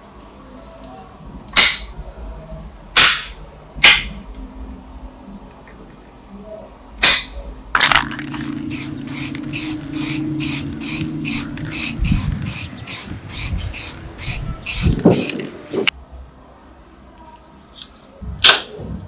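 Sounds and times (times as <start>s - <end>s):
spray paint can hissing: 8.0s - 15.9s.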